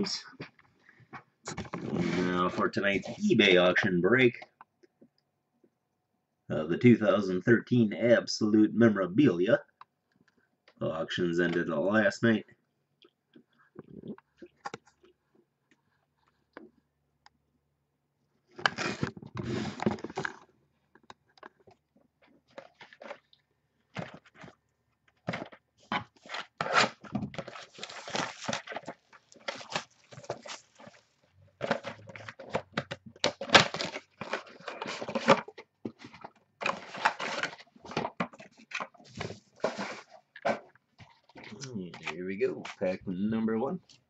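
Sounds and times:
plastic wrap and cardboard crinkling: 0:25.4 - 0:41.4.

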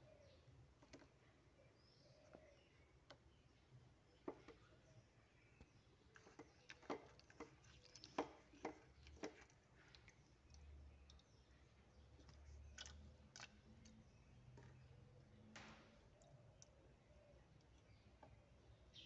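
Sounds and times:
hands rinsing fish in water: 0:06.2 - 0:11.3.

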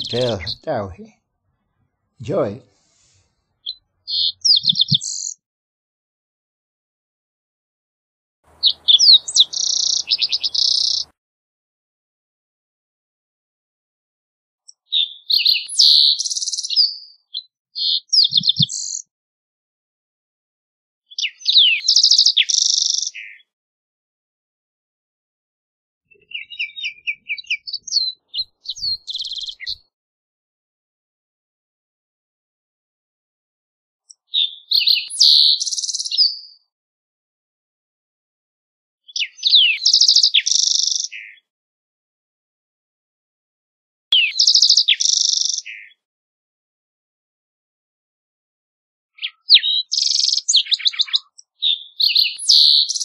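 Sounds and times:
bird singing whistles and buzzy trill: 0:08.6 - 0:11.1, 0:15.0 - 0:17.1, 0:21.2 - 0:23.4, 0:26.2 - 0:29.8, 0:34.7 - 0:36.6, 0:39.2 - 0:41.3, 0:44.2 - 0:45.9, 0:49.2 - 0:51.3, 0:52.0 - 0:53.0.

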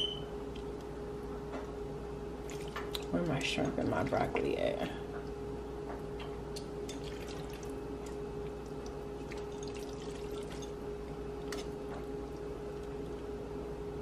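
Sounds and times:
steady hum: 0:00.0 - 0:14.0
soft wet food sounds: 0:00.4 - 0:14.0.

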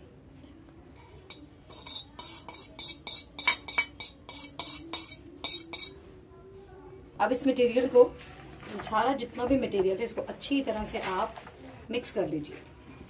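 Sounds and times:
utensil clinking on ceramic plate: 0:01.3 - 0:06.0.

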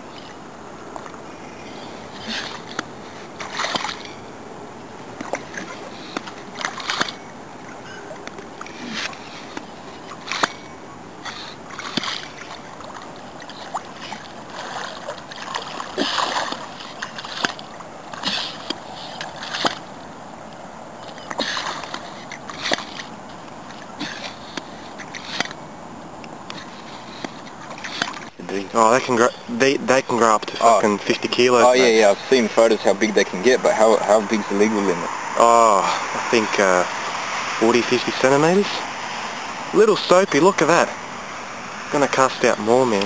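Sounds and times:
shallow water splashing: 0:00.0 - 0:43.0.

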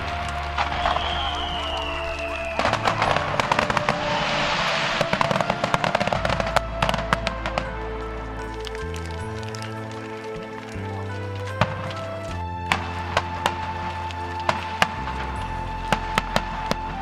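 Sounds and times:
descending whistling tone: 0:00.0 - 0:09.0
background music with low notes: 0:00.0 - 0:17.0
fireworks crackling: 0:00.0 - 0:17.0.

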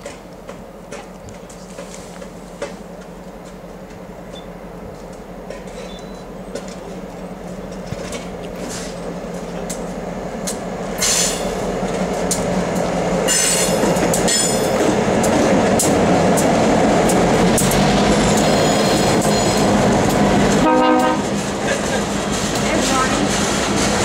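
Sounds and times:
diesel locomotive engines running: 0:00.0 - 0:24.0
wheels clicking over rail joints: 0:00.0 - 0:24.0
high wheel squeal: 0:05.7 - 0:06.3, 0:18.1 - 0:19.7.

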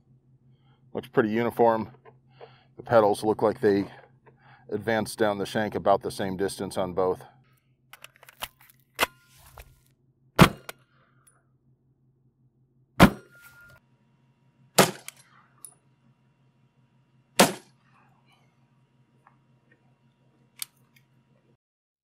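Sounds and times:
gunshots: 0:10.4 - 0:10.7, 0:13.0 - 0:13.3, 0:14.8 - 0:15.2, 0:17.4 - 0:17.8.

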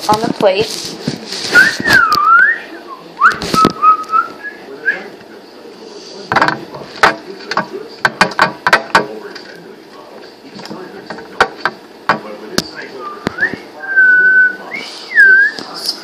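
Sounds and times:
person whistling: 0:01.5 - 0:04.6, 0:13.1 - 0:15.6.

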